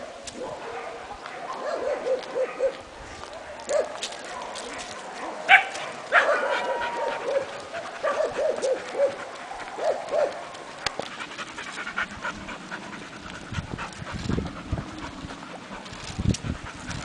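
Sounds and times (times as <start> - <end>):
dog panting: 3.7 - 17.0.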